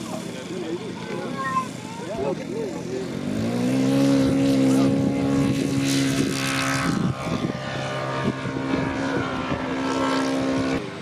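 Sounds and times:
model plane engine drone: 0:00.0 - 0:11.0.

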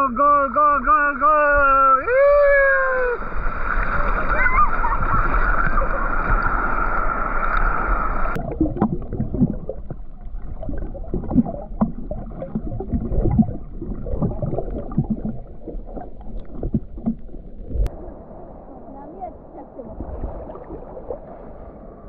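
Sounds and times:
whitewater rushing: 0:00.0 - 0:08.4
muffled underwater bubbling: 0:03.1 - 0:21.3.

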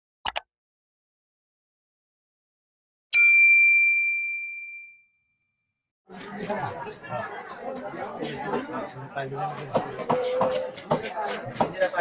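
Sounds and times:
bright bell ding: 0:03.2 - 0:05.2.

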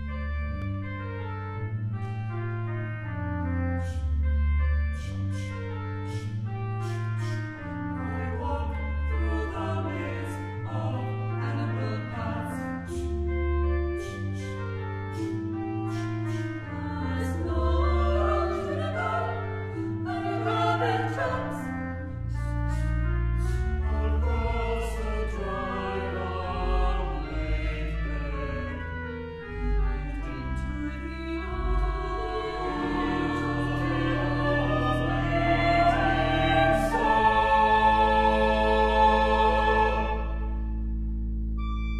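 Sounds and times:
low organ notes: 0:00.0 - 0:41.9
choir singing: 0:06.8 - 0:13.2, 0:15.2 - 0:41.0.

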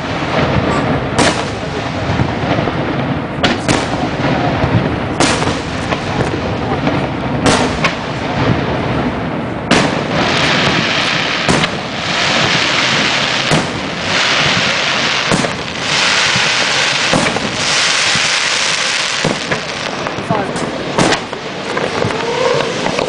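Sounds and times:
rain-like crackling hiss: 0:00.0 - 0:23.0
firework shells bursting: 0:09.7 - 0:23.0.

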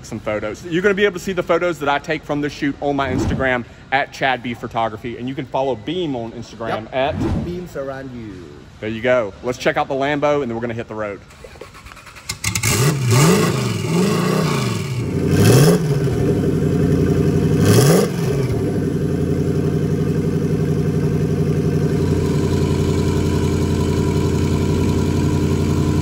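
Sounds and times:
engine idling: 0:11.3 - 0:26.0
engine throttle blips: 0:11.7 - 0:26.0.

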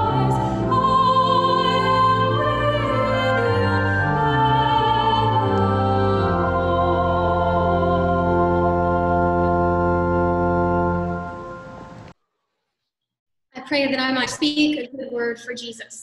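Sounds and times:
woman singing: 0:00.0 - 0:09.2
organ holding chord: 0:00.0 - 0:12.1.

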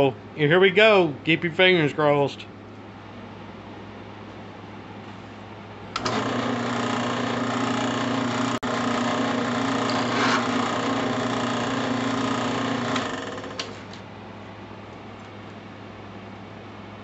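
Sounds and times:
drill press motor humming: 0:05.9 - 0:14.0.

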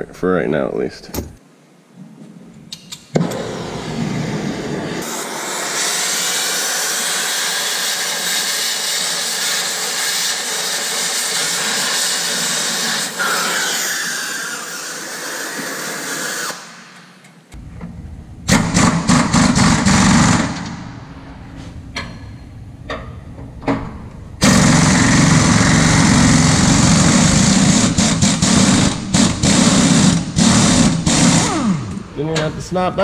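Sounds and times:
torch flame hissing: 0:03.2 - 0:16.8
pneumatic impact wrench hammering: 0:18.5 - 0:20.8, 0:24.4 - 0:32.1.

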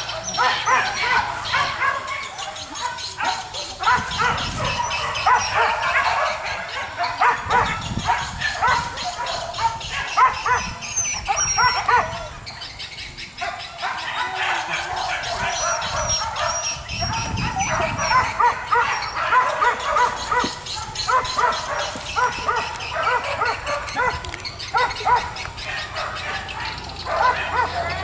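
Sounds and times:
dogs barking and yelping: 0:00.0 - 0:28.0.

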